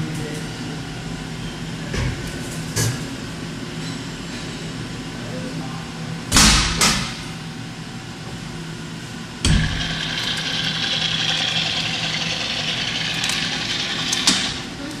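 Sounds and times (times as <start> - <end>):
machine hum: 9.3 - 15.0.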